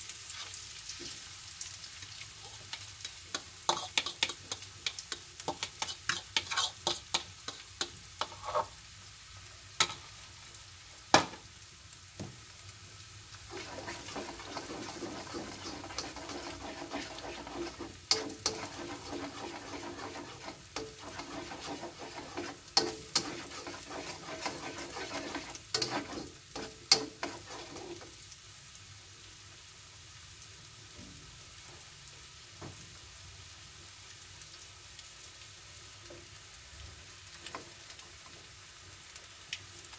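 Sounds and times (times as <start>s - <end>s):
egg sizzling in oil: 0.0s - 31.0s, 31.6s - 39.9s
spatula scraping pan: 2.4s - 8.8s, 13.5s - 28.2s.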